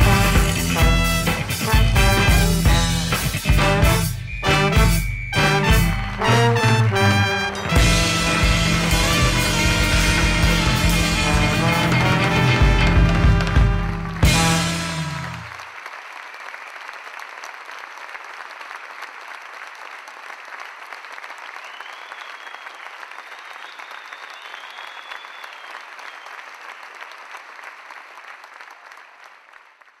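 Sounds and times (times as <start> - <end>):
audience applauding: 0.0 - 30.0
faint high whistles: 4.2 - 6.1, 21.6 - 26.4.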